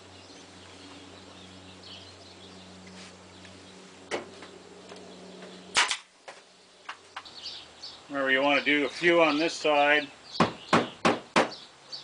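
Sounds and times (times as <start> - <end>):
staple gun firing into wood: 5.8 - 6.1.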